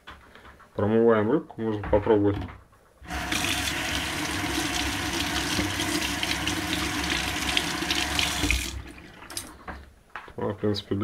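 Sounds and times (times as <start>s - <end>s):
fish rinsed by hand: 3.1s - 9.5s.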